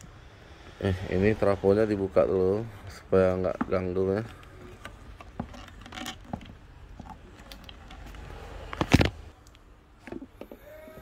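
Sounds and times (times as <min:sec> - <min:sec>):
small clicks and rustles: 0:04.2 - 0:10.6.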